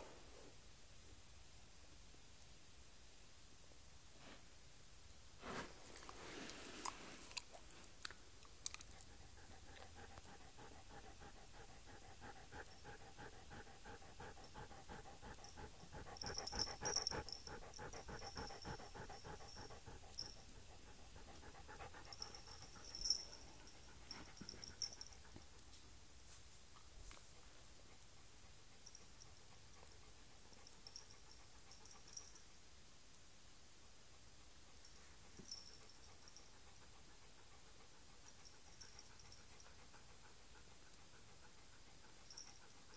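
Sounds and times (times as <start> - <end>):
dog panting rapidly: 9.0 - 25.4, 35.8 - 42.9.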